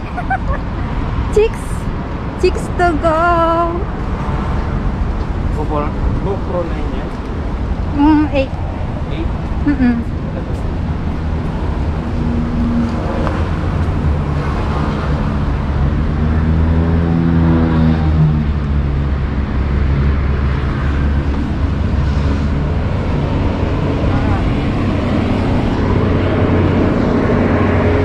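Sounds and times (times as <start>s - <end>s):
traffic rumble: 0.0s - 28.0s
vehicle engine passing: 0.0s - 28.0s.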